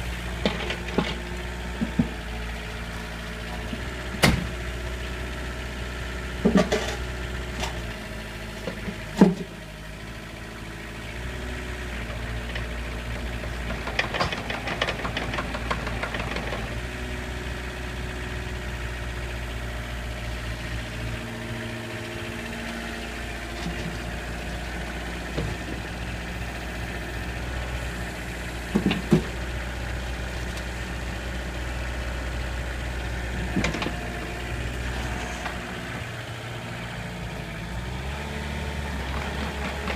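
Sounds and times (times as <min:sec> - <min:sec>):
diesel engine running: 0:00.0 - 0:39.9
rattling clatter: 0:13.6 - 0:16.8.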